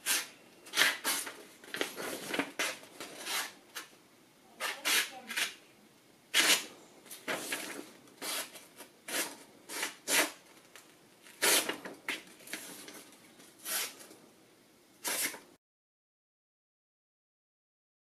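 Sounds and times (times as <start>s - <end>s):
knife scratching through paper: 0.0s - 3.6s, 4.6s - 5.6s, 6.3s - 10.4s, 11.3s - 12.8s, 13.6s - 14.1s, 15.0s - 15.4s
paper rustling: 0.2s - 3.9s, 6.4s - 14.1s.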